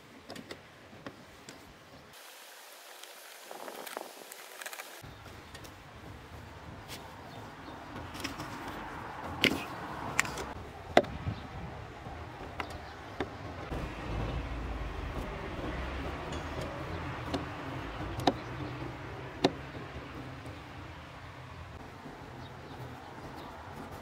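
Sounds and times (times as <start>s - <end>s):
low rumble: 9.8s - 22.2s.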